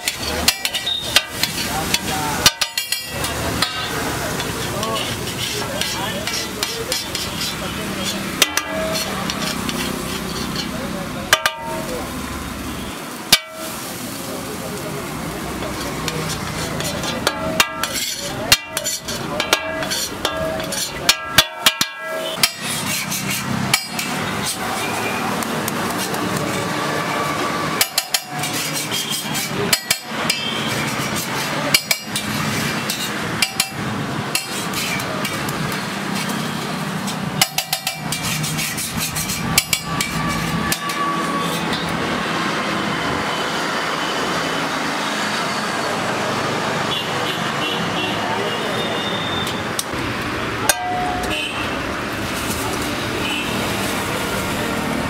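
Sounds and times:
metal spatula scraping griddle: 0.0 - 11.9, 15.6 - 42.0
steady background noise: 0.0 - 55.0.

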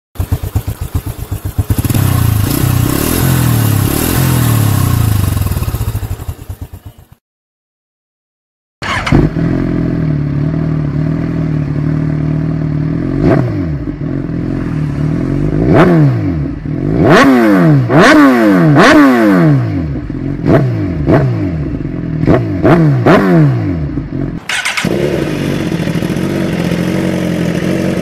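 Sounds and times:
motorcycle engine idling: 0.2 - 7.2, 8.8 - 13.2, 23.9 - 28.0.

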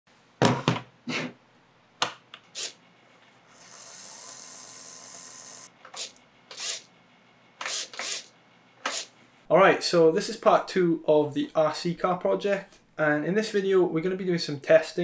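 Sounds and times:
servo buzzing: 2.5 - 2.8, 3.4 - 6.9, 7.6 - 9.2
small motor whining: 3.4 - 6.9.

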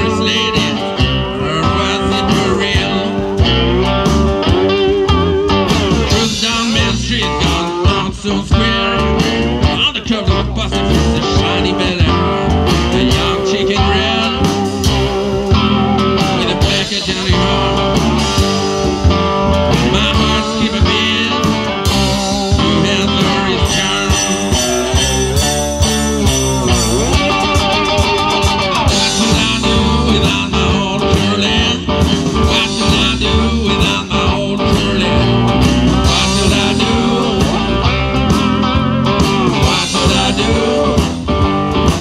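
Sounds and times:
cigar box guitars: 0.0 - 42.0
drum kit beat: 0.0 - 42.0
harmonica: 20.9 - 30.0.

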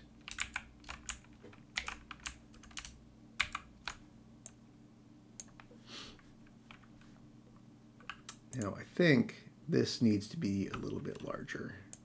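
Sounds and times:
faint low hum: 0.0 - 12.0
keyboard and mouse clicks: 5.4 - 5.7.

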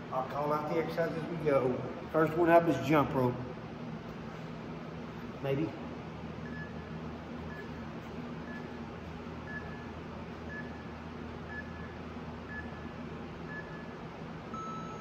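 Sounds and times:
timer beeps: 6.4 - 6.9, 7.5 - 7.8, 8.4 - 8.8, 9.4 - 10.9, 11.5 - 12.9, 13.5 - 15.0.

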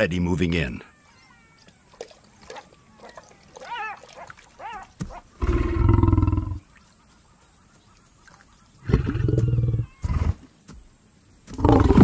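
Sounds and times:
lioness growling: 5.4 - 6.6, 11.5 - 12.0.

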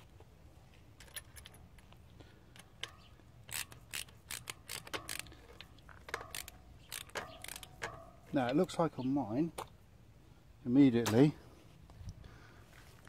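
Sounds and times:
ratchet wrench clicking: 1.0 - 8.1.

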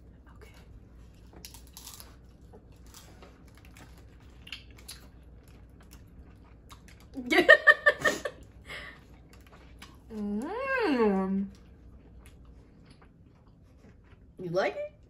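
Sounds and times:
person laughing loudly: 7.3 - 8.4.

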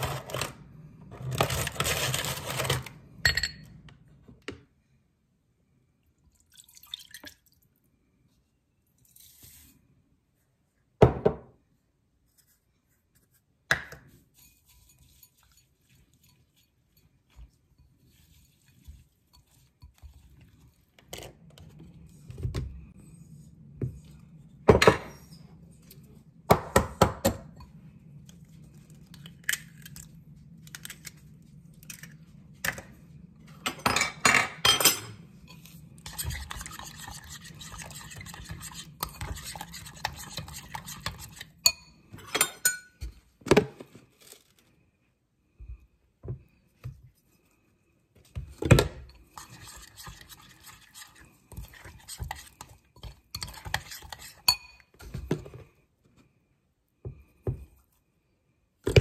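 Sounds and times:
low steady hum: 0.0 - 59.0
spoon clinking against glass bowl: 41.6 - 43.0, 53.4 - 54.9.

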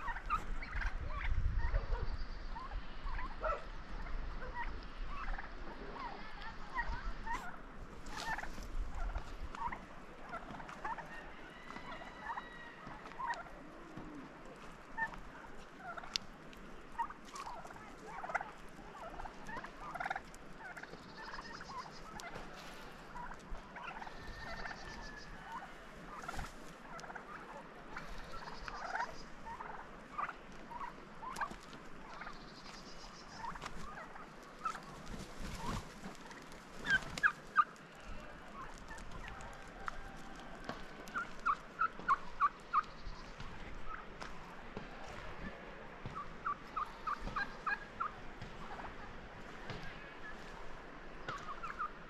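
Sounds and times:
turkeys calling: 0.0 - 52.0.

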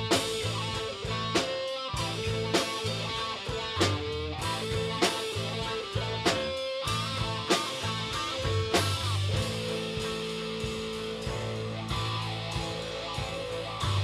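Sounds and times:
guitar over drum kit: 0.0 - 14.0.

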